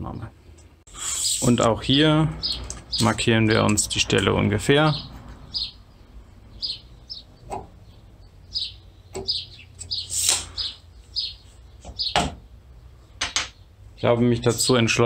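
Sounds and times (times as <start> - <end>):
small bird chirping: 2.3 - 12.2.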